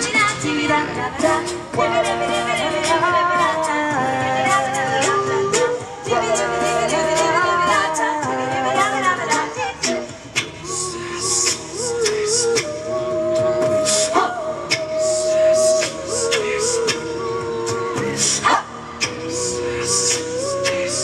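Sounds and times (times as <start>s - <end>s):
vocal group singing in harmony: 0.0s - 21.0s
beatbox clicks: 5.0s - 12.8s, 13.4s - 21.0s.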